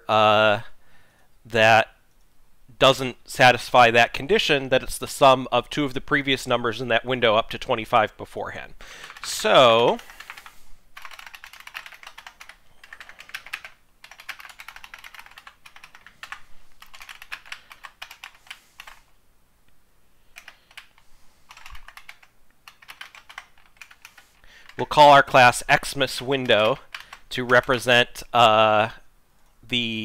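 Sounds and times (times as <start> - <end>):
typing on computer keyboard: 9.0 - 9.4, 10.0 - 19.0, 20.3 - 24.8, 26.1 - 27.8.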